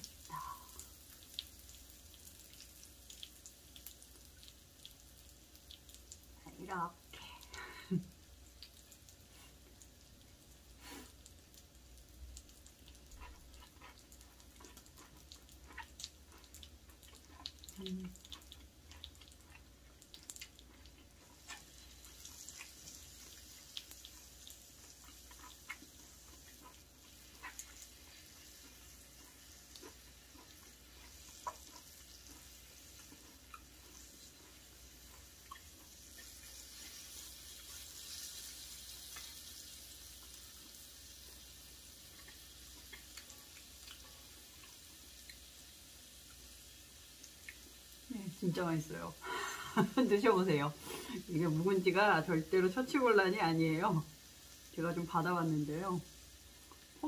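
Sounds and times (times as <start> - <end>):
person chewing food: 0.0 - 6.4, 7.5 - 48.1, 56.1 - 57.0
griddle sizzling: 0.0 - 6.9, 7.5 - 57.0.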